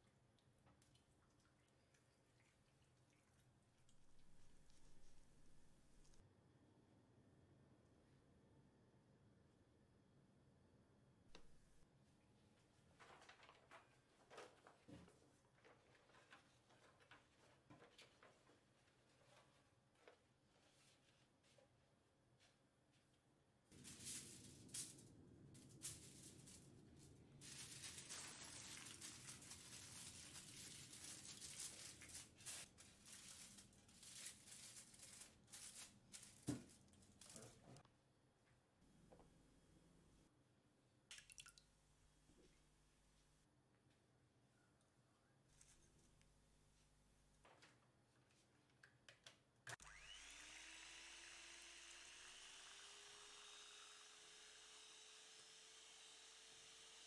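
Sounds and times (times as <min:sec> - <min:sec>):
aluminium foil crinkling: 0:23.8 - 0:37.8
electric hand mixer whine: 0:49.8 - 0:57.0.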